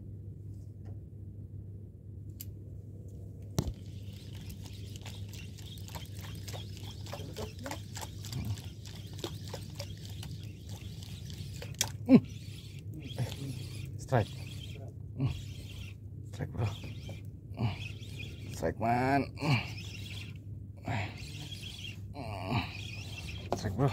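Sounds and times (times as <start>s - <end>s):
steady low hum: 0.0s - 23.9s
fishing reel clicking: 3.6s - 16.0s, 16.6s - 18.7s, 19.6s - 20.4s, 21.1s - 23.6s.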